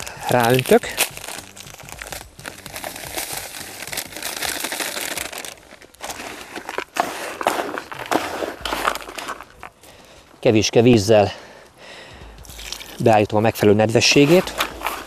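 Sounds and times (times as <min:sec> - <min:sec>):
hands stirring dry bait: 0:00.0 - 0:10.4, 0:12.4 - 0:15.0
plastic bag crinkling: 0:00.0 - 0:10.4, 0:14.0 - 0:15.0.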